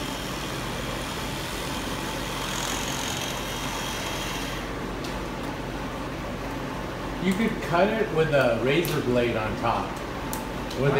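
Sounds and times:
multi-tool motor buzzing: 0.0s - 4.8s.

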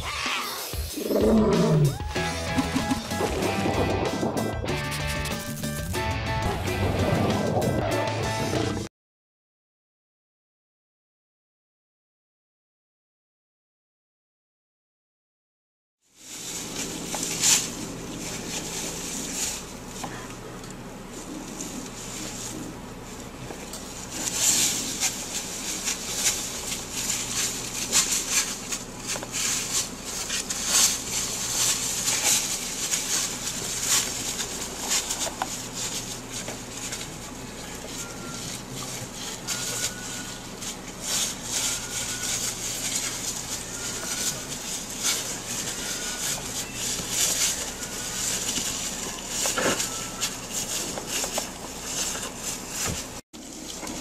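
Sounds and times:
dry leaves rustling and crackling: 16.1s - 54.0s.

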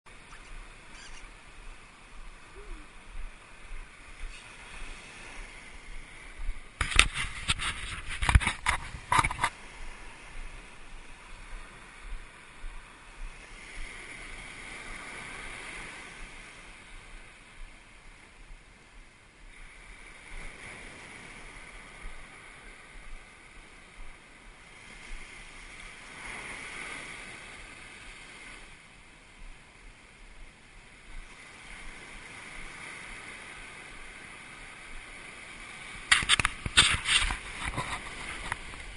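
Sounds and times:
waves breaking on beach: 0.1s - 38.9s.

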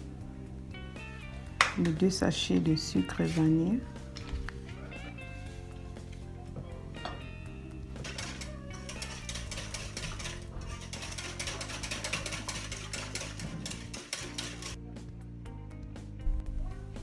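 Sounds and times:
whisk clicking against glass bowl: 8.0s - 14.8s.

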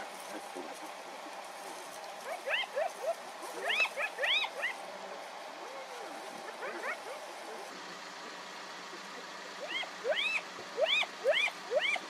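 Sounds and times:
steady background hiss: 0.0s - 12.0s
animal chirps rising and falling: 9.6s - 12.0s.

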